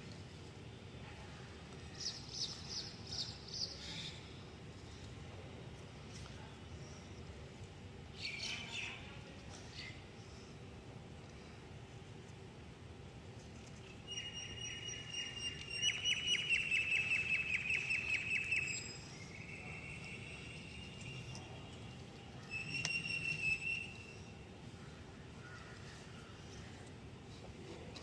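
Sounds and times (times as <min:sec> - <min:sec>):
bird high thin call and trill: 0:22.4 - 0:24.3.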